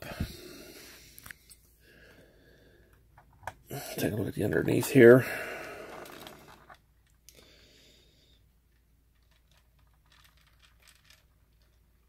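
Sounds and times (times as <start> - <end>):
plastic model car clicking: 8.7 - 12.0.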